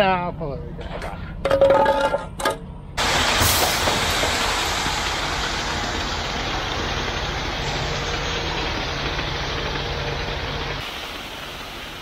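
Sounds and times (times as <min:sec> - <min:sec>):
truck engine rumble: 0:02.9 - 0:12.0.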